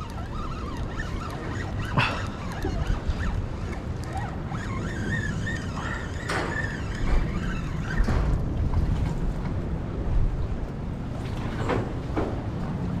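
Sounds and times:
faint high wavering calls: 0.0 - 8.0
wind rumbling on microphone: 0.0 - 13.0.

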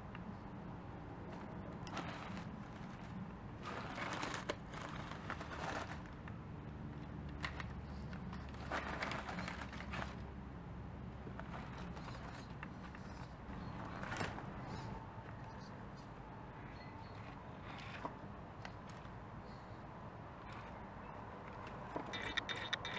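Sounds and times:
tyres clicking and scraping on rocks: 21.5 - 22.9.

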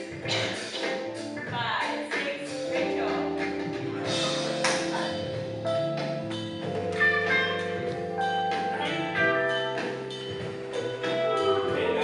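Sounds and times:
music with held notes: 0.0 - 12.0.

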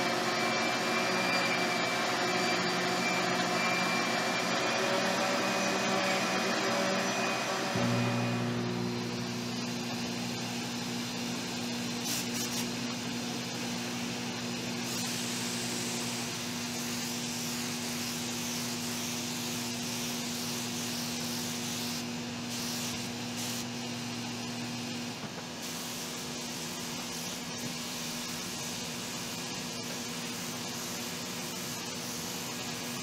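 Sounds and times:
steady motor hum: 0.0 - 25.4
spray gun hissing: 1.8 - 25.0, 25.6 - 33.0.

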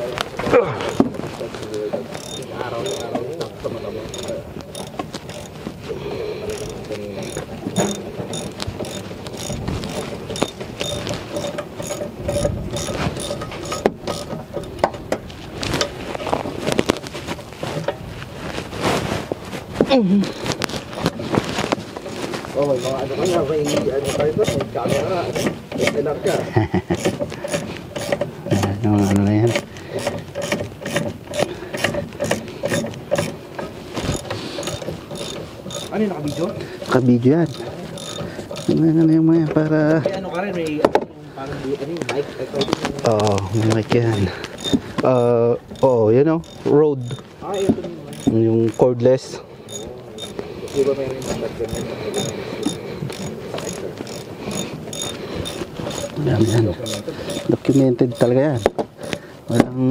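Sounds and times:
socket ratchet clicking: 2.2 - 3.1, 4.1 - 5.6, 6.5 - 14.8, 34.1 - 36.5, 37.5 - 38.8, 44.4 - 47.3, 48.1 - 48.8, 49.7 - 59.2.

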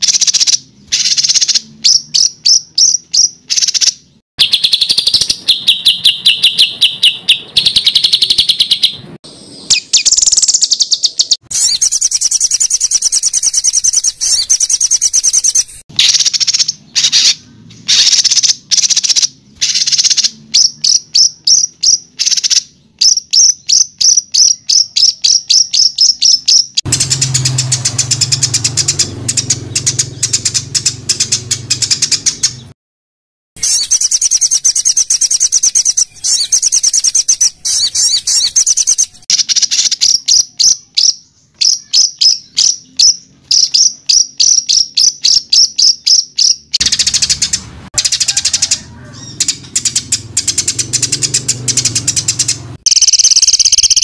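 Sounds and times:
songbird repeated sharp notes: 0.0 - 32.8, 33.6 - 54.0.

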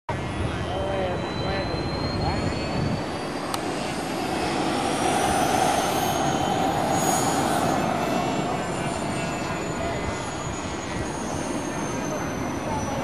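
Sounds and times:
high fan whine: 0.1 - 13.0
rushing air: 2.4 - 11.6.

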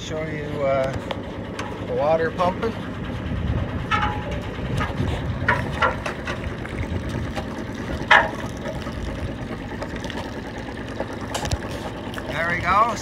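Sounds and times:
diesel engine running: 0.0 - 13.0
knocks and scrapes: 3.6 - 6.6.

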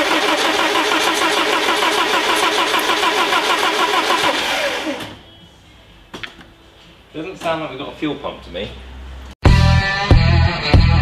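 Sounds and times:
starter motor cranking engine: 0.0 - 5.2.

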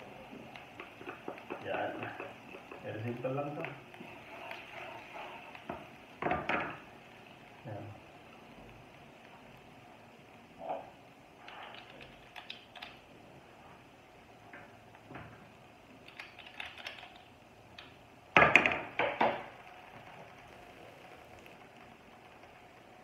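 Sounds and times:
garlic frying in a pan: 0.0 - 11.7.

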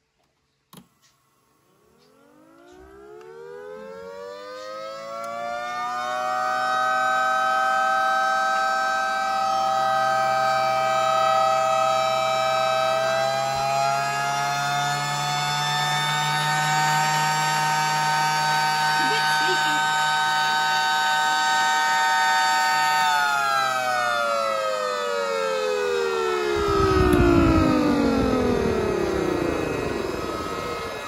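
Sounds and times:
siren winding up: 2.0 - 31.0
low steady hum: 26.3 - 31.0.

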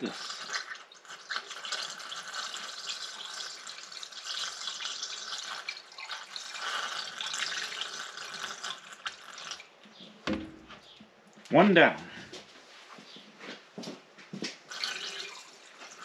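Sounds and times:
liquid pouring from jug: 0.0 - 9.7, 14.7 - 16.0.

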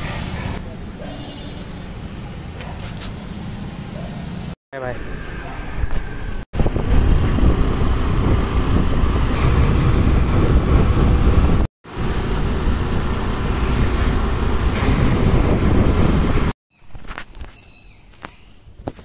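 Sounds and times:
vehicle road and engine noise: 0.0 - 19.0
wind buffeting microphone: 5.9 - 11.7, 12.9 - 16.5.

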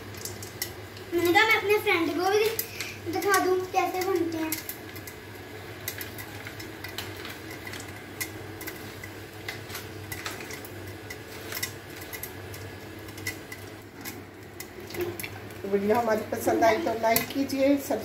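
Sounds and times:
popcorn popping against glass lid: 0.0 - 16.4
steady background hum: 0.0 - 18.0.

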